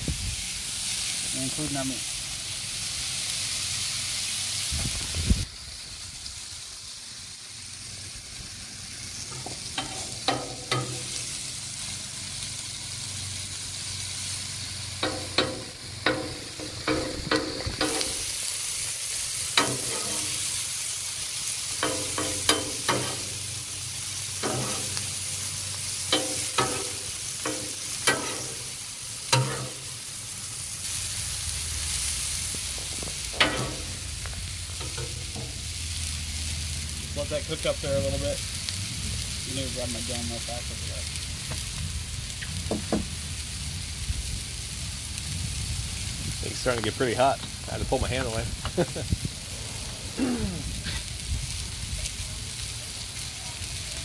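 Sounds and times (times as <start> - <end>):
vegetables sizzling on griddle: 0.0 - 54.0
metal spatula scraping griddle: 9.3 - 11.4, 15.0 - 18.3, 19.5 - 20.6, 21.8 - 23.5, 24.4 - 25.2, 26.1 - 30.0, 33.3 - 34.1.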